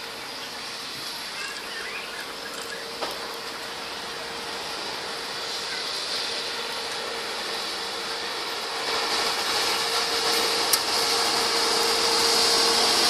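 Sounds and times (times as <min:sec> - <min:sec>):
distant train engine hum: 0:00.0 - 0:13.0
outdoor background noise: 0:00.0 - 0:13.0
faint bird chirps: 0:01.3 - 0:03.0.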